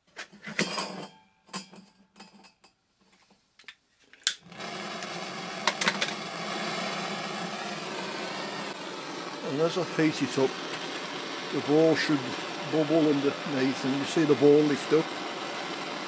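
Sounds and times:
blowtorch lighting click: 4.2 - 16.0
blowtorch flame hissing: 4.4 - 16.0.

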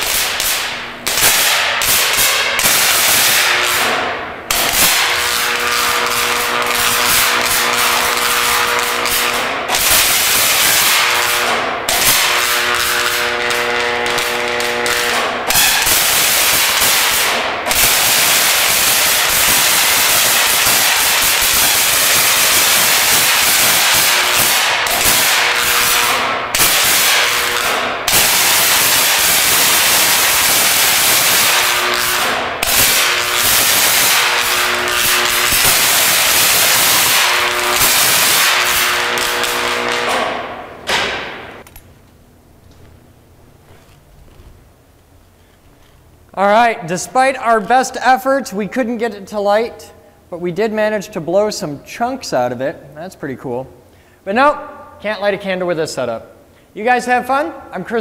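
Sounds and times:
electric arc crackling hiss: 0.0 - 41.6
buzzing hum: 0.0 - 46.8.

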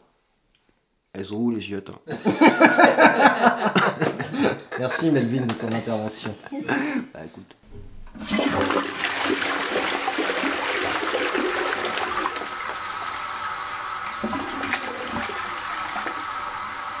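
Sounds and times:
toilet flushing: 7.7 - 17.0.

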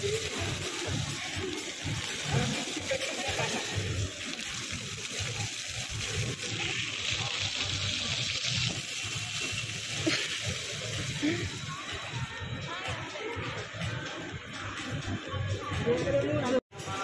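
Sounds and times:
fountain water splashing on paving: 0.0 - 12.4.

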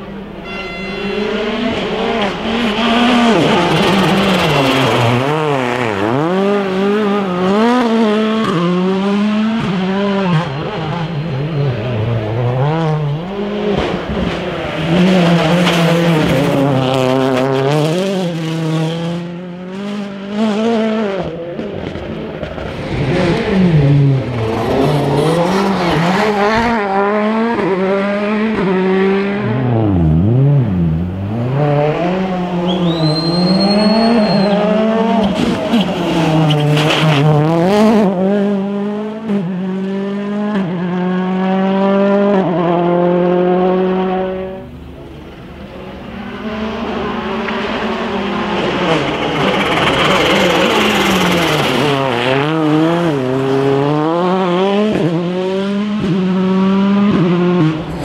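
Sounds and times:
rally car engines revving: 0.0 - 58.0
high whistle: 0.4 - 1.6, 32.6 - 34.9.

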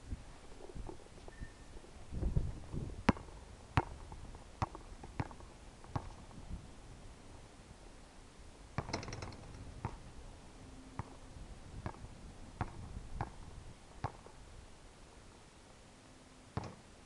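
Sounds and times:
basketball bouncing on hard court: 4.6 - 6.2, 14.0 - 14.2, 16.6 - 16.8.

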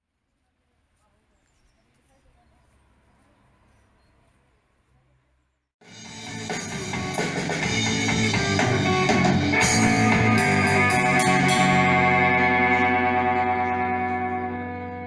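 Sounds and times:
rock music with guitar and drums: 5.8 - 15.0.

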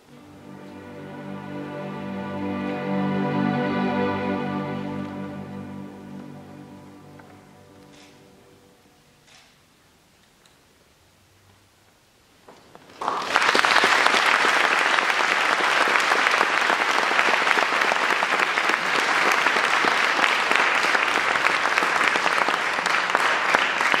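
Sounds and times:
audience applauding: 12.9 - 24.0.

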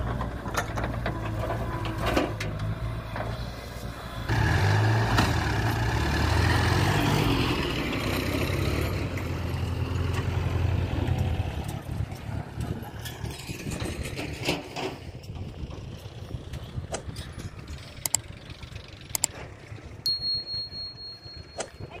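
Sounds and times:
tractor diesel engine rumble: 0.0 - 22.0
sharp clicks: 18.0 - 18.2, 19.1 - 19.4.

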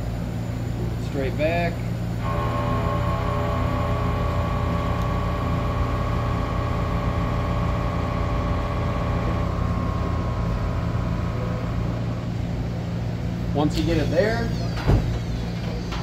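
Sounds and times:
low machine hum: 0.0 - 16.0
machine axis drives whining: 2.2 - 12.5.

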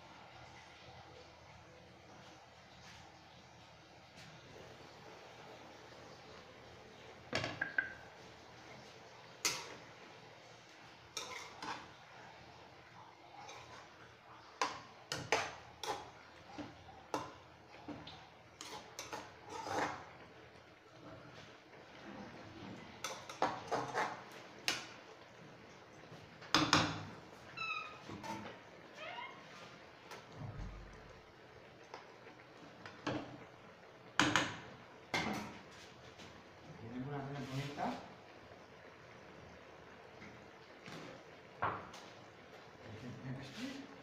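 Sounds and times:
spoon scraping while stirring: 11.1 - 12.0, 13.4 - 14.0, 18.6 - 20.2, 23.0 - 24.8.

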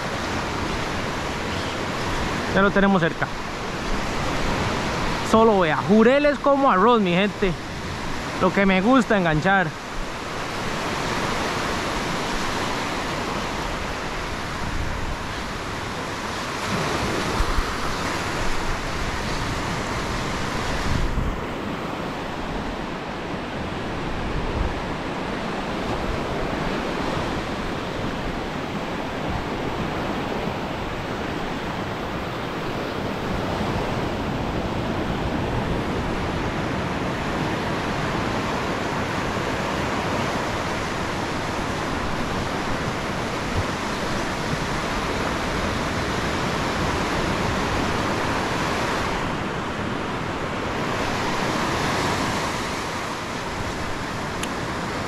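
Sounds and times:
ocean surf breaking on beach: 0.0 - 55.0
wind rumbling on microphone: 9.8 - 55.0.

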